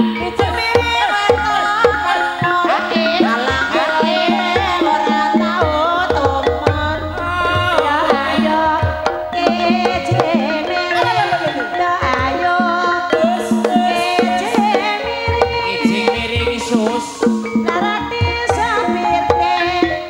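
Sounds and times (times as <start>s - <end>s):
hand drums beating: 0.0s - 20.0s
sustained pitched instruments: 2.2s - 17.7s
wavering melody line: 2.5s - 16.6s.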